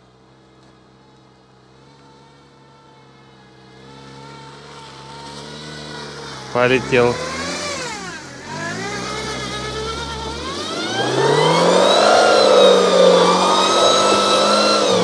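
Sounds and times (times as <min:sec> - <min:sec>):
wheels spinning in mud: 0:00.0 - 0:15.0
diesel engine revving hard: 0:03.7 - 0:15.0.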